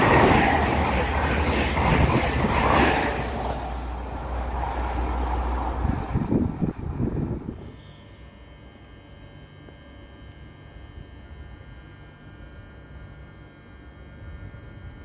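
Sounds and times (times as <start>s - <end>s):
wind noise on microphone: 0.0s - 7.8s
train whining tones: 0.0s - 8.1s
electric train humming: 0.0s - 8.9s.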